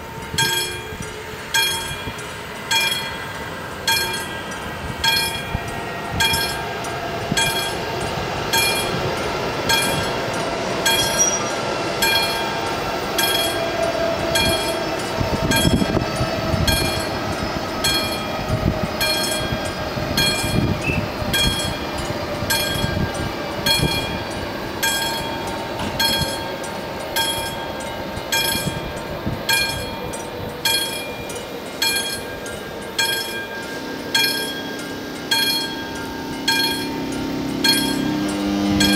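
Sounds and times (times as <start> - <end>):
train rumbling: 0.0 - 38.9
level crossing bell ringing: 29.6 - 38.9.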